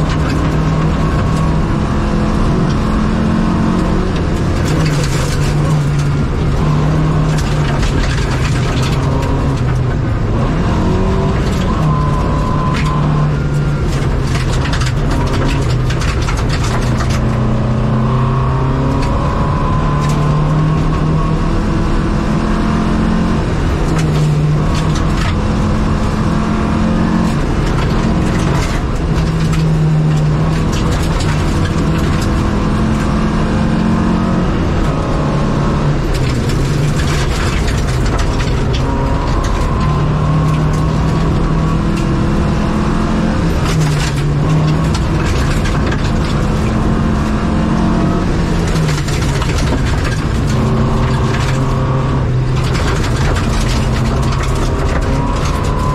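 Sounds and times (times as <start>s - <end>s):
rally car engine revving: 0.0s - 55.9s.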